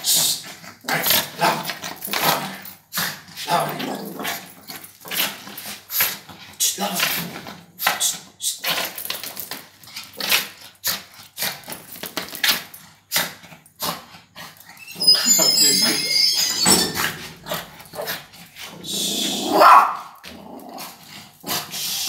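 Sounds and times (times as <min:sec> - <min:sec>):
dog growling barks: 0:00.4 - 0:05.7, 0:17.1 - 0:21.8.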